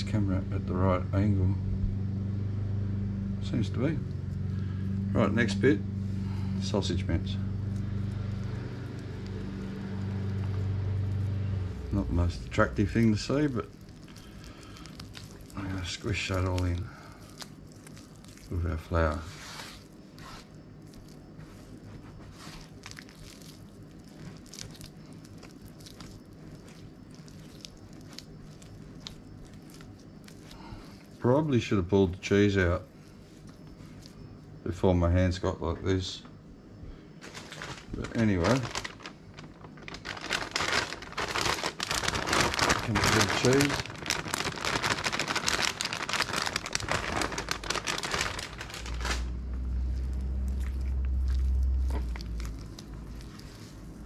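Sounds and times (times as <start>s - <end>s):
steady low hum: 0.0s - 54.0s
hands squishing dough: 4.2s - 34.2s, 37.3s - 54.0s
plastic packet crinkling: 7.6s - 21.8s, 22.4s - 31.2s, 37.2s - 53.9s.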